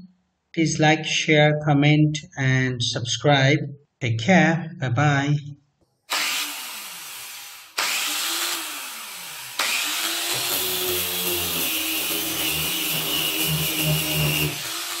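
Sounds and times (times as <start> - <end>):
angle grinder motor: 6.1 - 15.0
grinding disc on metal: 7.8 - 15.0.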